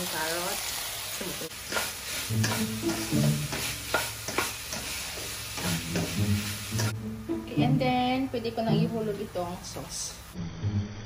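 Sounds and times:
meat sizzling in a wok: 0:00.0 - 0:07.2
spatula scraping a wok: 0:01.6 - 0:07.0.

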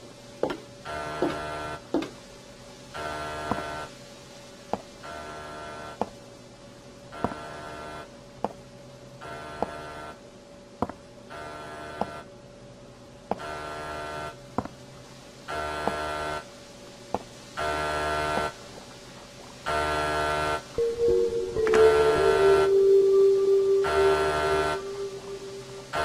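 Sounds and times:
buzzing electronic ring: 0:20.1 - 0:26.0.

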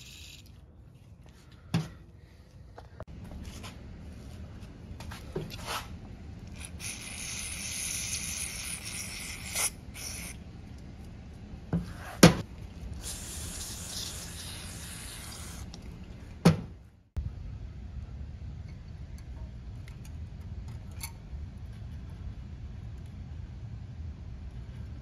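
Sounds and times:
aerosol spray hissing: 0:13.0 - 0:15.6.

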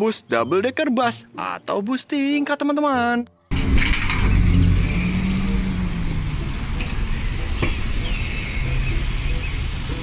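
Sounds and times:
buses driving past: 0:03.5 - 0:10.0.

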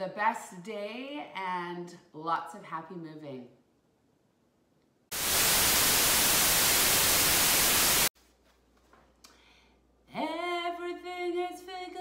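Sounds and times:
loud white-noise static: 0:05.1 - 0:08.1.

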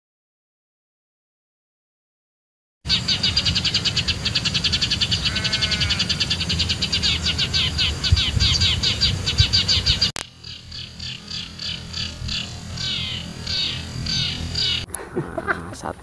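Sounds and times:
sparrows chirping: 0:02.9 - 0:14.9
low rumble: 0:03.1 - 0:15.5.

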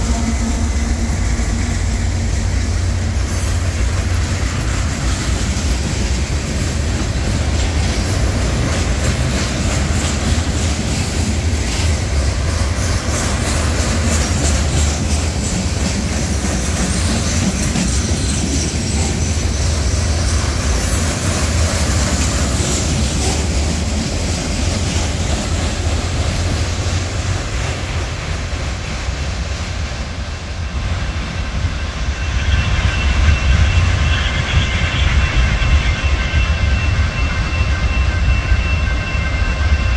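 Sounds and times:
train wheels rumbling on rail: 0:00.0 - 0:39.9
high steady squeal: 0:30.4 - 0:39.9.

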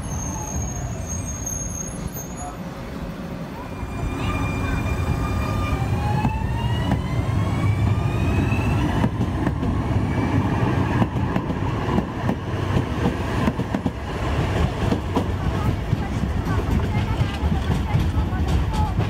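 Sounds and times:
tram motor whine: 0:02.7 - 0:16.4
wheels clicking over rail joints: 0:11.0 - 0:19.0.

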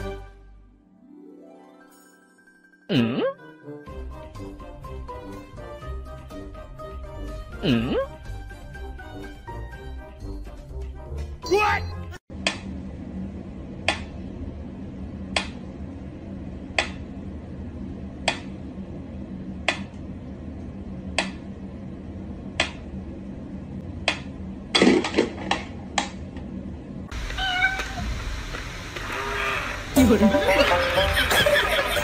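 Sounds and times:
steady hiss: 0:27.2 - 0:31.9.

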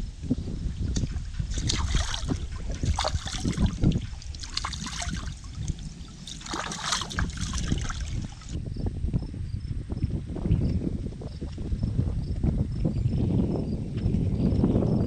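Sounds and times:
water splashing and sloshing: 0:00.9 - 0:08.6.

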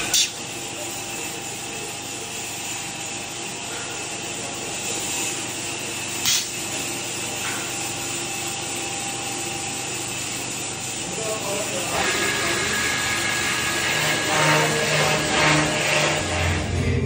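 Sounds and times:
wood lathe running: 0:09.6 - 0:17.0
sanding wheels on wood: 0:11.6 - 0:16.8.

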